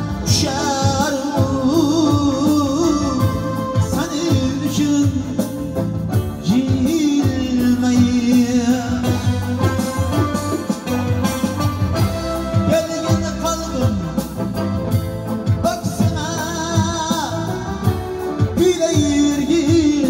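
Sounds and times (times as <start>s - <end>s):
electronic keyboard: 0.0s - 20.0s
man singing: 0.0s - 20.0s.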